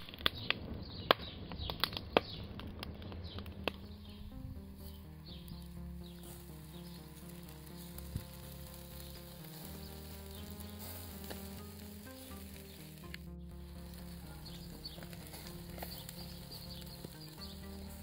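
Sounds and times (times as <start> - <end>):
instrumental background music: 0.1 - 18.0
food sizzling on a grill: 7.6 - 13.0.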